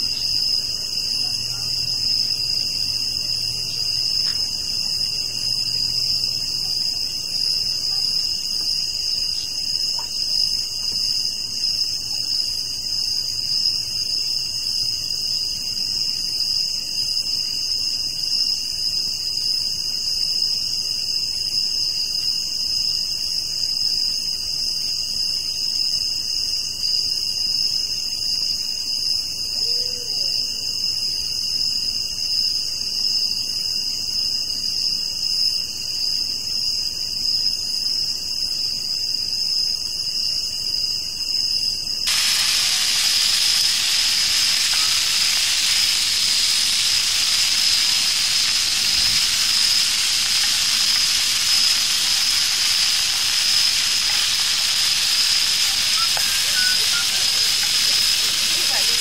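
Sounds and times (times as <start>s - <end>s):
night insects chorus: 0.0s - 59.0s
sausages sizzling in a pan: 42.1s - 59.0s.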